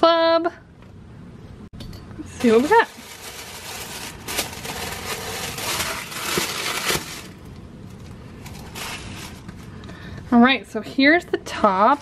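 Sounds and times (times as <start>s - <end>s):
tissue paper crinkling: 2.4s - 7.4s, 8.3s - 9.8s.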